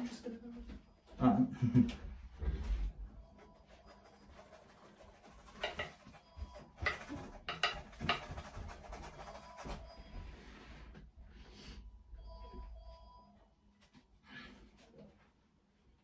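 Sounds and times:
paintbrush scraping gritty canvas: 0:03.5 - 0:10.8.

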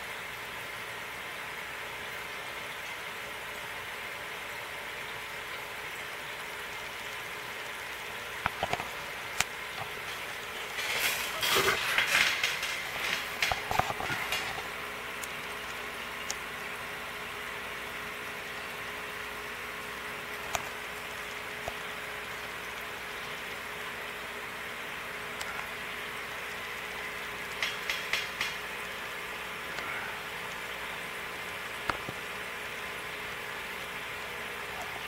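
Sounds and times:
faint steady hum: 0:00.0 - 0:35.0
air bubbling through sponge filter: 0:07.8 - 0:16.8.

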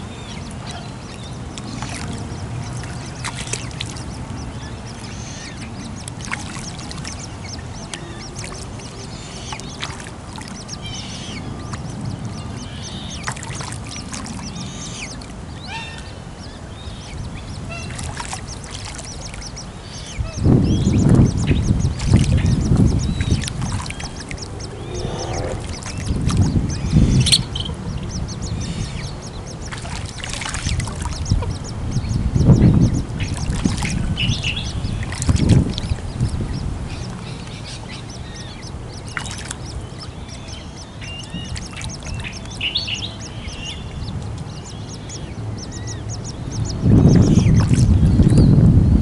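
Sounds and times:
waterbirds calling: 0:00.0 - 0:49.0
low rumble: 0:19.5 - 0:29.6, 0:31.2 - 0:37.6.

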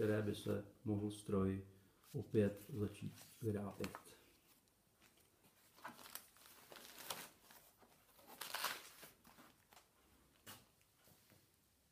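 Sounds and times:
paper rustling: 0:02.1 - 0:10.6.

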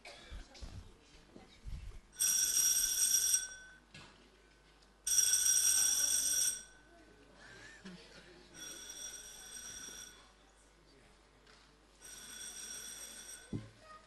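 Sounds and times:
telephone bell ringing: 0:02.2 - 0:03.9, 0:05.1 - 0:06.9, 0:08.6 - 0:10.4, 0:12.0 - 0:13.8.

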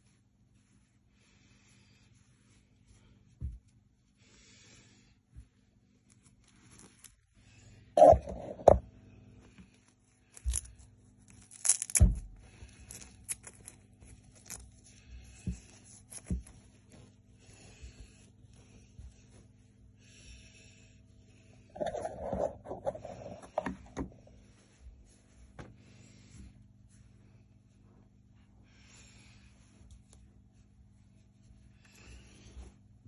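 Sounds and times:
faint low hum: 0:00.0 - 0:33.0
fabric rustling and scraping: 0:05.9 - 0:07.4, 0:21.6 - 0:28.3.

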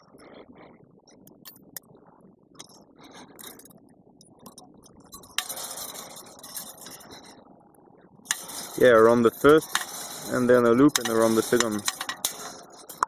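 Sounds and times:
wire clicking and clinking: 0:01.1 - 0:01.9, 0:02.6 - 0:07.4, 0:08.3 - 0:13.0
loud scraping: 0:05.4 - 0:07.2, 0:08.3 - 0:13.0.

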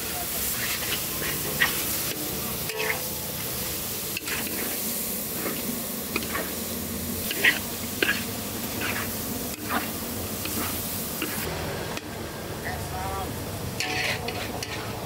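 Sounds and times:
meat sizzling in a pot: 0:00.0 - 0:15.0
stirring tool scraping metal pot: 0:07.3 - 0:11.4, 0:13.8 - 0:15.0.

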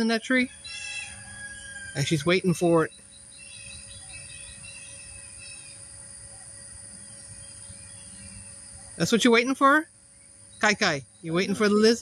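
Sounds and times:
bird chirps: 0:00.0 - 0:09.1
high-pitched insect drone: 0:00.0 - 0:12.0.

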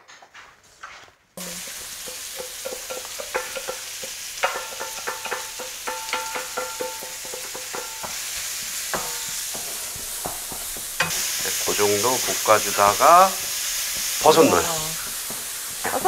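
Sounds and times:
vegetables sizzling in hot oil: 0:01.4 - 0:16.0
spatula clinking on metal bowl: 0:02.0 - 0:08.2.

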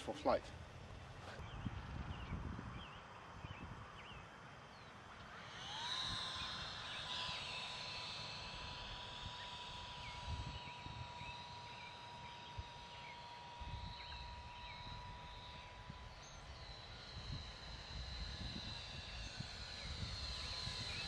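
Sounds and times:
model jet whine: 0:00.0 - 0:21.0
wind buffeting microphone: 0:01.3 - 0:04.0, 0:17.2 - 0:21.0.

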